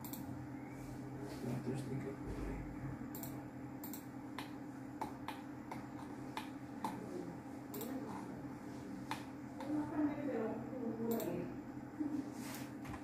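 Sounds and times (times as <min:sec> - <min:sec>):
computer mouse clicking: 0:00.0 - 0:00.2, 0:03.1 - 0:07.0, 0:07.7 - 0:08.2, 0:11.1 - 0:11.3.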